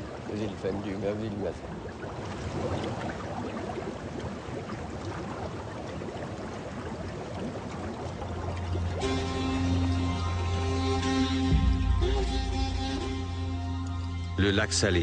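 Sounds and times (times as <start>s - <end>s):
hot springs bubbling and gurgling: 0.0s - 11.1s.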